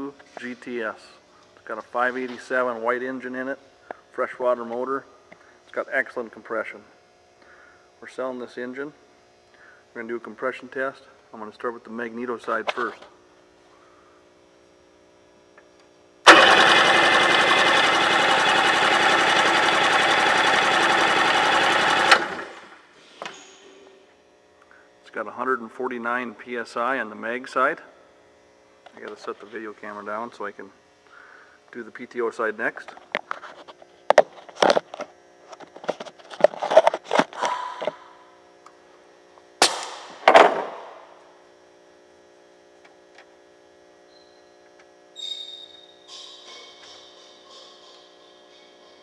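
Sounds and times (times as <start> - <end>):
engine cranking on electric starter: 16.3 - 22.8.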